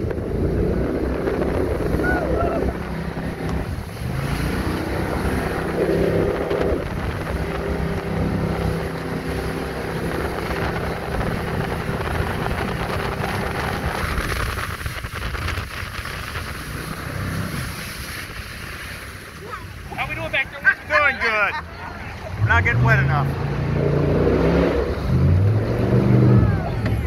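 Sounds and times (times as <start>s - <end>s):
wind buffeting microphone: 0.0s - 21.0s
boat engine running: 0.0s - 27.0s.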